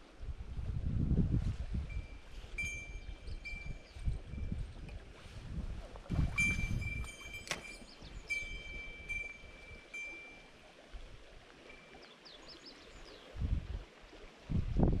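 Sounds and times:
wind buffeting microphone: 0.0 - 10.0, 13.0 - 15.0
river flowing: 5.9 - 14.5.

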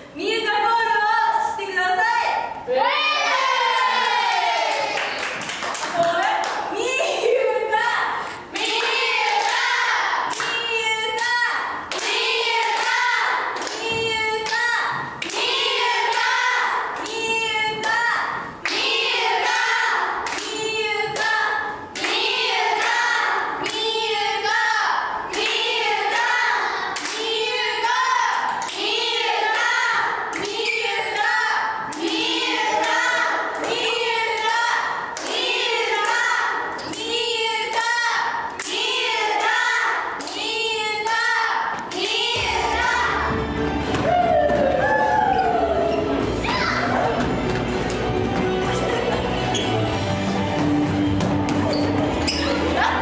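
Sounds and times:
crowd clapping on beat: 4.3 - 6.7, 8.5 - 17.2
crowd chanting in unison: 41.1 - 43.6.

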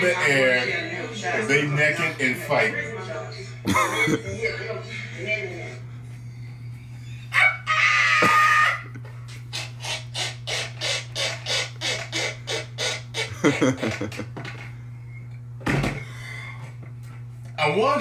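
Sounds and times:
man laughing hard: 3.7 - 4.4, 7.6 - 9.1, 13.3 - 14.4.

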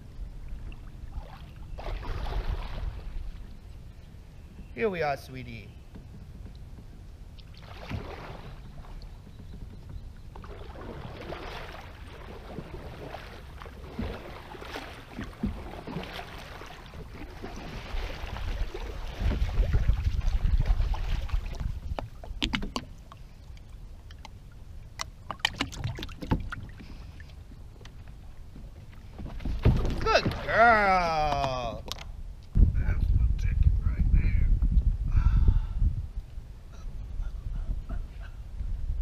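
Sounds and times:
paddle splashing in water: 0.6 - 3.5, 7.3 - 31.6
canoe knocking on plastic dock: 13.8 - 16.4, 29.2 - 30.6
low rumble: 32.1 - 39.0.

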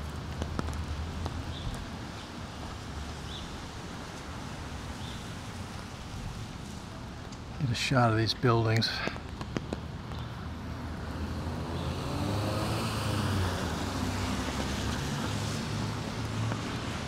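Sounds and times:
car driving by on wet street: 10.1 - 17.0.

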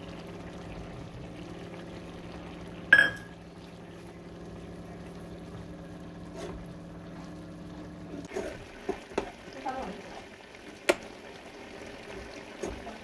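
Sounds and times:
chutney simmering in a pan: 0.0 - 13.0
spoon clinking on a pan: 3.0 - 3.4.

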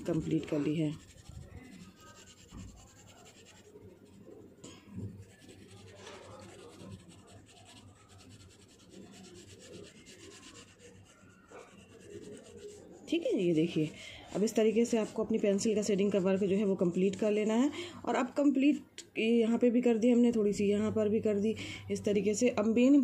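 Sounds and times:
pencil rubbing on paper: 0.0 - 17.7.

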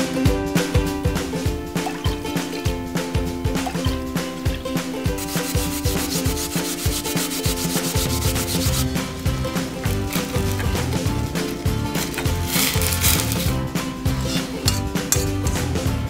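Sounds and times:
background music with steady beat: 0.0 - 16.0
yam rasping on hand grater: 5.0 - 15.7.

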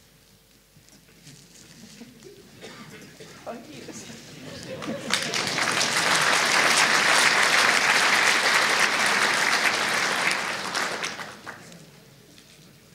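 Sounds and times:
audience applauding: 4.6 - 11.9.

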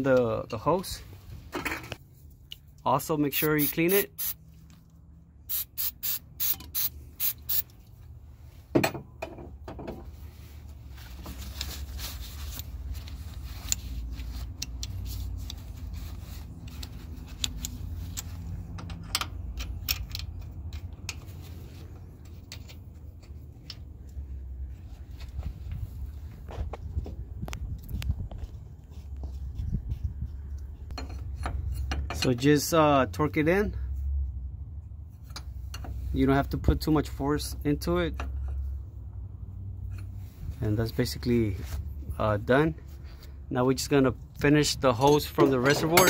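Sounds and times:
low steady rumble: 4.2 - 46.0
aerosol spraying: 5.5 - 7.6.

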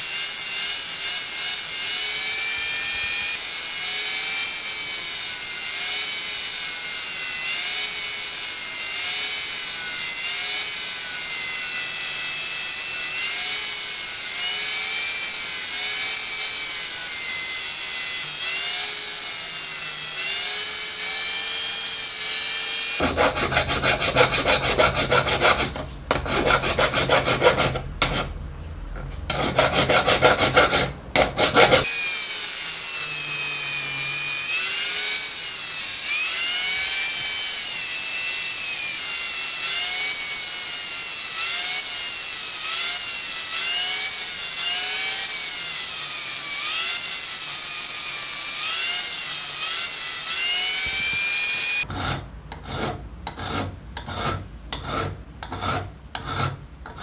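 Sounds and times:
angle grinder whining: 0.0 - 28.3, 29.0 - 51.9
hand file scraping metal: 22.9 - 42.7, 51.8 - 57.0.

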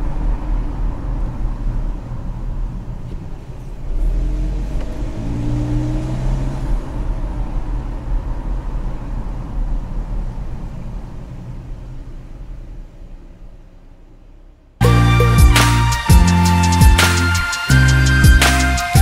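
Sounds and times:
road noise inside car: 0.0 - 14.9
car engine rumble: 0.0 - 19.0.

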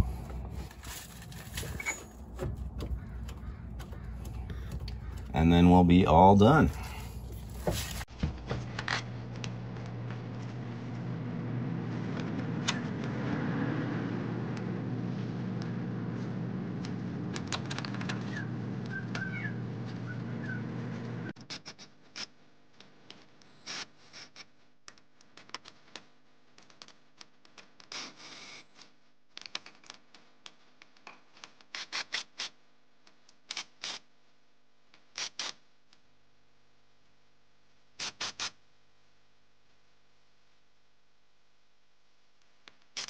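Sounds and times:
hand tools clicking and scraping: 0.0 - 5.4.

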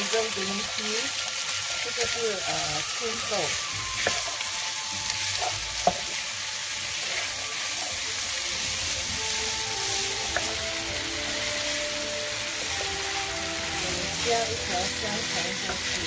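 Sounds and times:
food sizzling in a frying pan: 0.0 - 16.0
soft background music: 0.0 - 16.0.

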